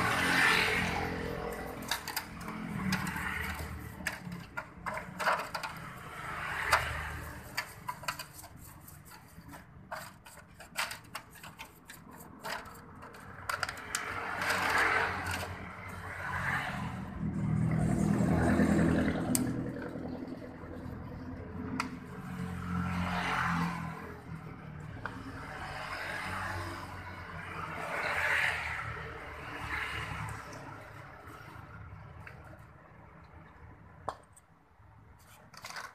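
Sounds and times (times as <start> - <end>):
stiff brush scrubbing metal: 0.0 - 15.7
metal clicks and knocks: 1.5 - 15.7.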